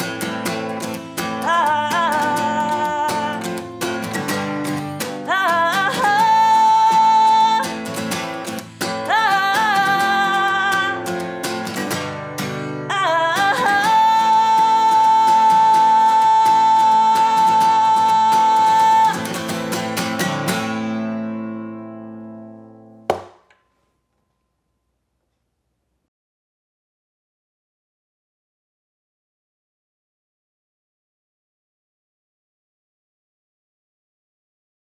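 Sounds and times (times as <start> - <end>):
acoustic guitar: 0.0 - 23.5
woman singing: 0.8 - 20.2.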